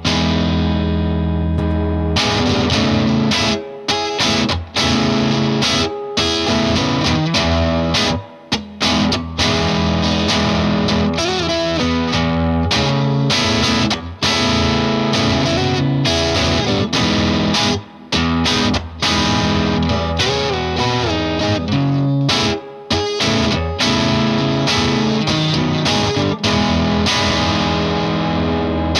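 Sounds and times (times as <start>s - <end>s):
overdriven electric guitar: 0.0s - 28.9s.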